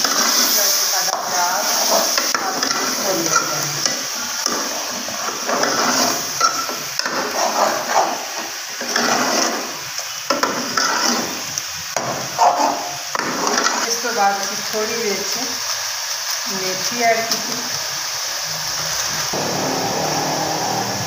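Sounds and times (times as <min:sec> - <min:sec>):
curry sizzling in a pot: 0:00.0 - 0:21.0
metal ladle scraping a pot: 0:05.4 - 0:09.7.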